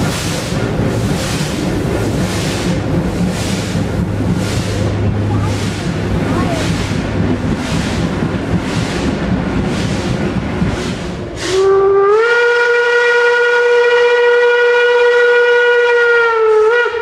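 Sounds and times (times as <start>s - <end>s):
steam locomotive exhaust beats: 0.0s - 17.0s
steam whistle chord: 11.4s - 17.0s.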